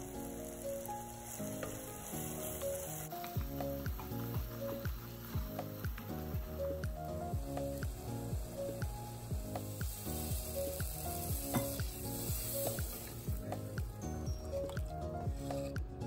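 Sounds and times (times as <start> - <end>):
food sizzling in oil: 0.0 - 15.8
background music with steady beat: 0.0 - 16.0.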